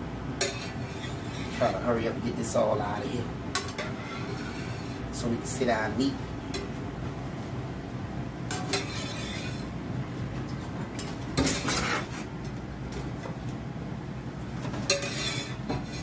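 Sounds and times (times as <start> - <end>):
steady low hum: 0.0 - 16.0
spatula scraping frying pan: 0.4 - 1.9, 3.6 - 5.2, 8.5 - 9.8, 11.4 - 12.3, 14.7 - 16.0.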